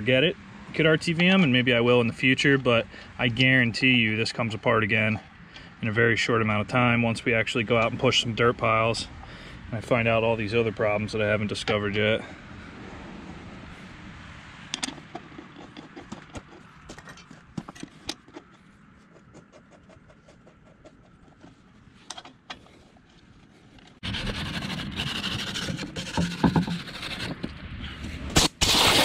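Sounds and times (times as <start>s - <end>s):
rough scraping and rubbing: 14.8s - 29.0s.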